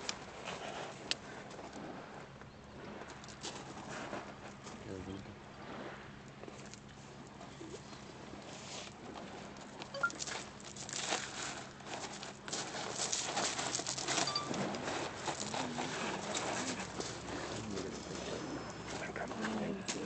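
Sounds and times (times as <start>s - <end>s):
pebbles crunching and rattling: 10.2s - 17.3s
dove cooing: 15.6s - 19.9s.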